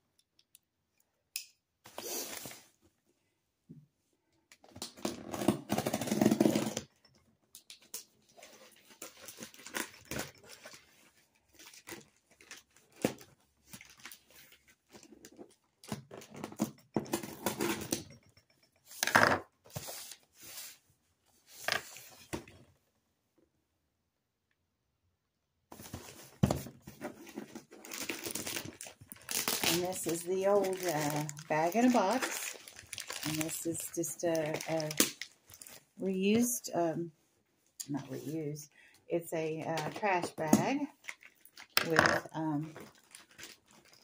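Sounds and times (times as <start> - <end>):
plastic bag crinkling and rustling: 8.2 - 16.6, 25.8 - 36.6, 39.8 - 44.0.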